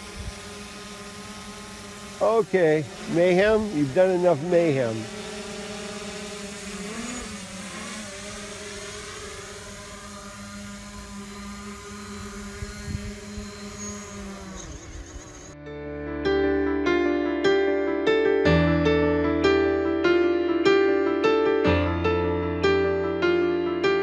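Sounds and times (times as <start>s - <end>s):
drone propellers buzzing: 0.0s - 15.6s
piano music: 15.6s - 24.0s.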